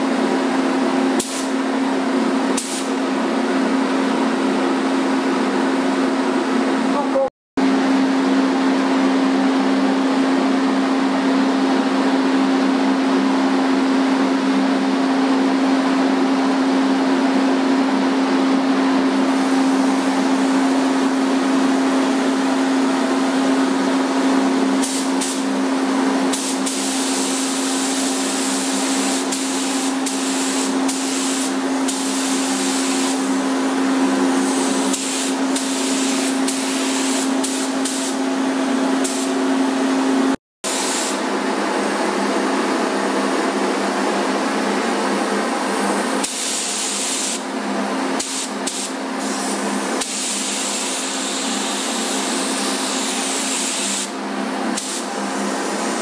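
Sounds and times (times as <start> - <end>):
steady mechanical hum: 0.0 - 56.0
paint spray gun hissing: 1.2 - 1.6, 2.6 - 3.0, 24.8 - 25.5, 26.3 - 33.3, 34.4 - 38.2, 39.0 - 39.4, 40.7 - 41.2, 46.2 - 47.4, 48.2 - 54.1, 54.8 - 55.2.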